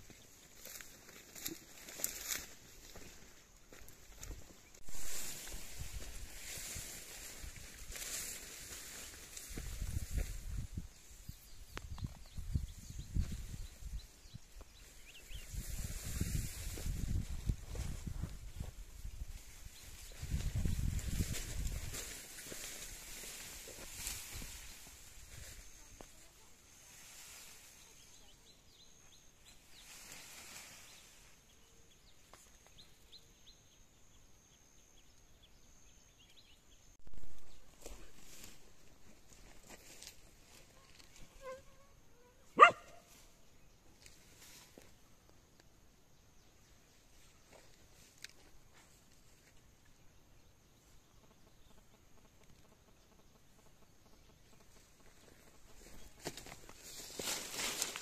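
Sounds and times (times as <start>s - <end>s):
rice plants rustling: 0.0s - 11.2s, 14.5s - 28.3s, 37.2s - 41.4s, 54.6s - 58.0s.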